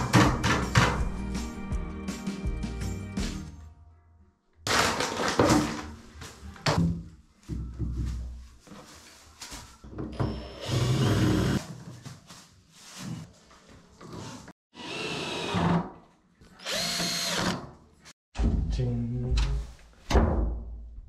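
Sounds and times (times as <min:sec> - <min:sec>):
knocks and rustling: 0:04.7 - 0:10.2
cordless drill running: 0:10.4 - 0:11.6, 0:14.8 - 0:15.5, 0:16.6 - 0:17.6.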